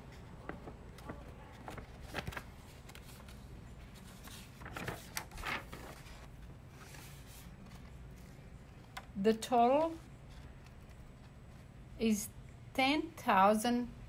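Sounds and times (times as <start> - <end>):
paper rustling: 0.0 - 11.7
low room hum: 0.0 - 14.0.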